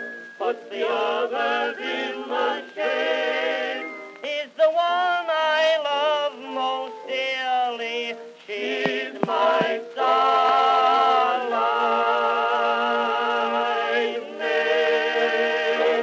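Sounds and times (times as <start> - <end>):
man singing with accompaniment: 4.2 - 13.6.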